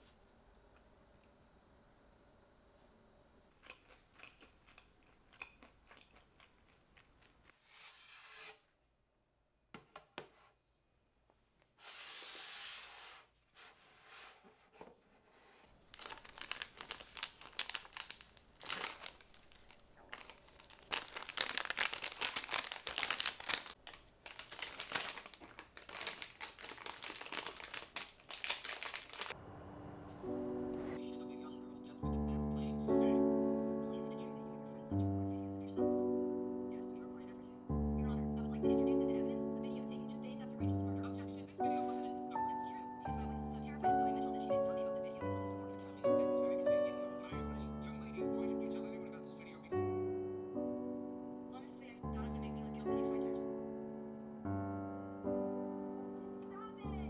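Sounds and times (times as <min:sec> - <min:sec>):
plastic bags crinkling: 0:15.8 - 0:29.4.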